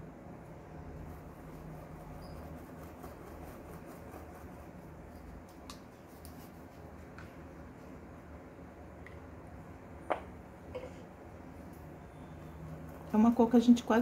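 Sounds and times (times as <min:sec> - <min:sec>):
low room hum: 0:00.0 - 0:14.0
paintbrush scratching on cloth: 0:01.0 - 0:07.1.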